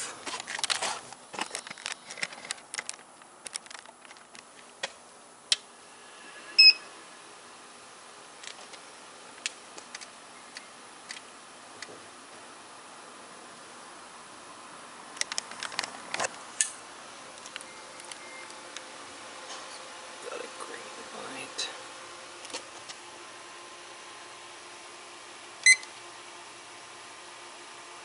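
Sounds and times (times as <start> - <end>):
faint steady hum: 0.0 - 28.0
short electronic beep: 6.5 - 6.9.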